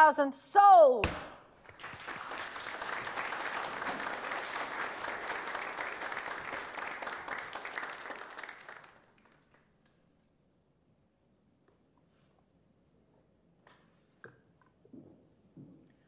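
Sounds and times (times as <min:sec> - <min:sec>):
people applauding: 0:01.6 - 0:09.8.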